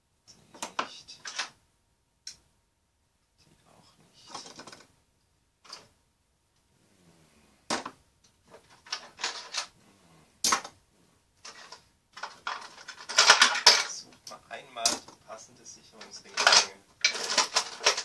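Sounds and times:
clatter of tools: 8.5 - 9.7, 11.4 - 15.2, 16.0 - 18.0
rustling handling: 11.4 - 15.3, 15.9 - 18.0.

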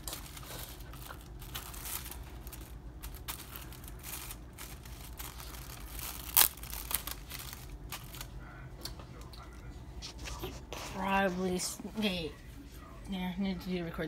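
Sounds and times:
plastic film crinkling: 0.0 - 8.5.

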